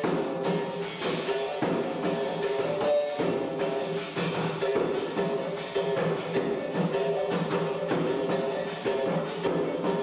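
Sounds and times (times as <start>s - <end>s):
berimbau twanging rhythm: 0.0s - 10.0s
drum strokes: 0.0s - 10.0s.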